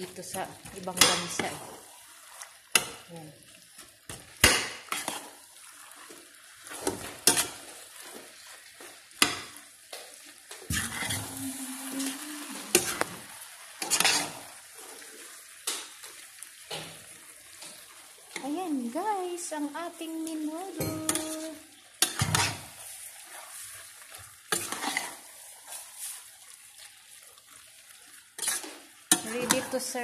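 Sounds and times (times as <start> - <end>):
stew sizzling: 0.0 - 30.0
spoon clinking and scraping pan: 3.7 - 8.5, 13.8 - 14.4, 20.7 - 26.3, 28.4 - 30.0.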